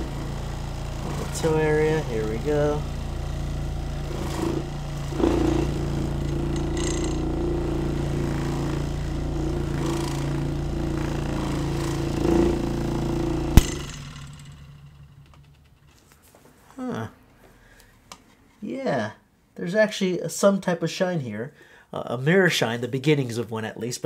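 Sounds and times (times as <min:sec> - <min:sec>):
electric shoe shiner motor humming: 0:00.0 - 0:14.6.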